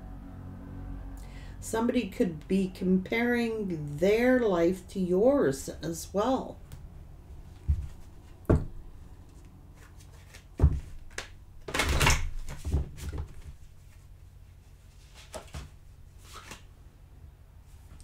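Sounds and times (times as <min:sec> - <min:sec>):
knock on cards: 0:07.7 - 0:08.8, 0:10.6 - 0:10.9
cards shuffling: 0:09.3 - 0:14.0, 0:15.0 - 0:16.7.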